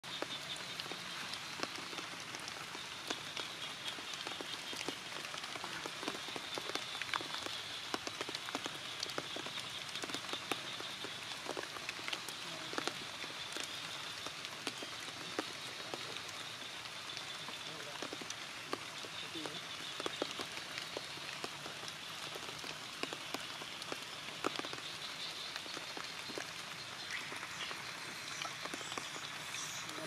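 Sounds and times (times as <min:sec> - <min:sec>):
heavy rain: 0:00.0 - 0:30.0
water drops splashing: 0:17.8 - 0:30.0.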